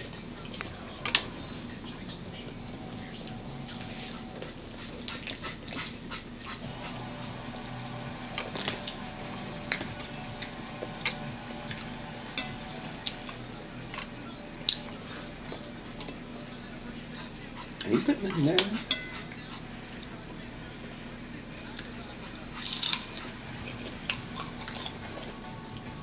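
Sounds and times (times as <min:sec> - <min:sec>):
low steady hum: 0:00.0 - 0:26.0
chewing crunches: 0:21.8 - 0:25.9.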